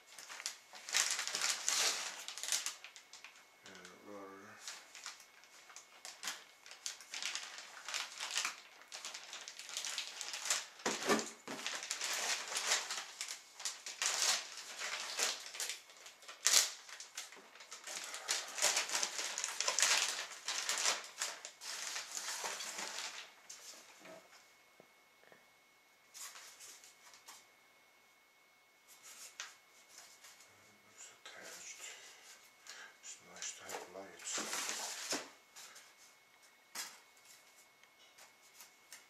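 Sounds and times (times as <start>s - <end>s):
plastic bags crinkling: 0.0s - 4.0s, 4.6s - 23.7s, 32.6s - 39.0s.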